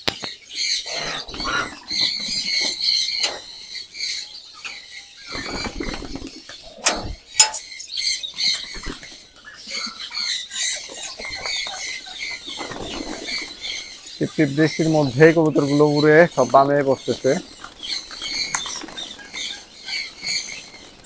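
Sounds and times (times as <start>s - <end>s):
pigeon wings flapping: 17.4s - 21.0s.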